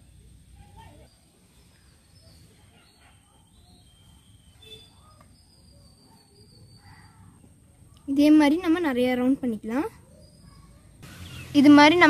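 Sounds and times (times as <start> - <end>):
bird chirps: 0.8 - 7.5, 10.0 - 11.9.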